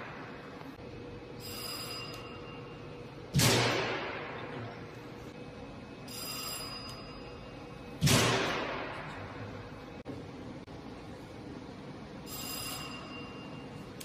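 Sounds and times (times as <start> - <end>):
faint high steady tones: 12.2 - 14.0.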